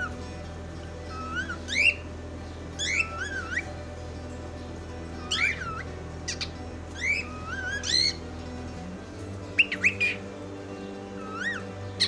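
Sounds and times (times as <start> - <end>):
cockatiel whistling: 2.8 - 3.7, 5.2 - 8.2.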